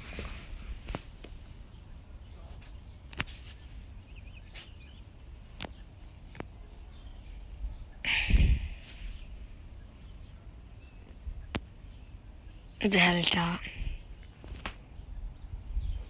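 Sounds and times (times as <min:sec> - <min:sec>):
rustle close to microphone: 0:00.0 - 0:12.0
faint bird chirps: 0:01.6 - 0:16.0.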